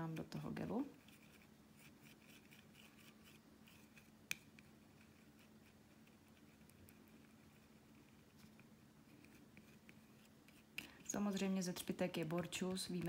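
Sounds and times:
small tool scraping and tapping: 0:01.0 - 0:11.0.

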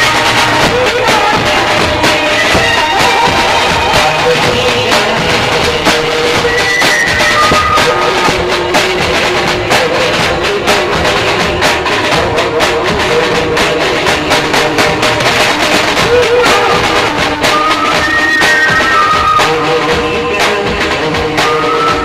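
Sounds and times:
large bass drum beating: 0:00.0 - 0:22.0
snare drum beating: 0:00.0 - 0:22.0.

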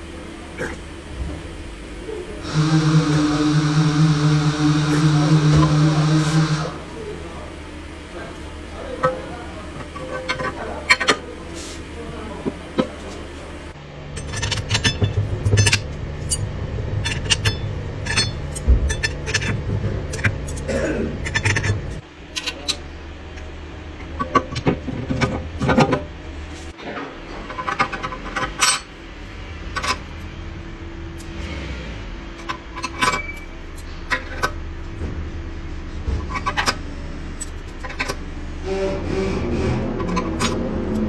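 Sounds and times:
low steady hum: 0:00.0 - 0:31.4
metal parts clinking: 0:14.2 - 0:21.7, 0:27.5 - 0:28.9.

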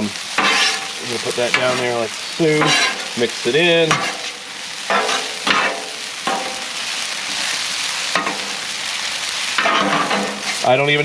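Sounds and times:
food sizzling on griddle: 0:00.0 - 0:11.0
metal spatulas scraping: 0:00.4 - 0:00.9, 0:02.6 - 0:03.1, 0:04.9 - 0:06.6, 0:09.6 - 0:10.7.

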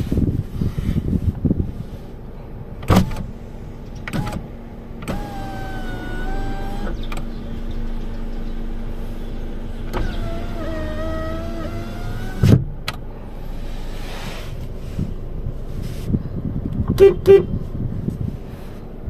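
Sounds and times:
power window motor whining: 0:04.1 - 0:07.3, 0:09.8 - 0:13.0.

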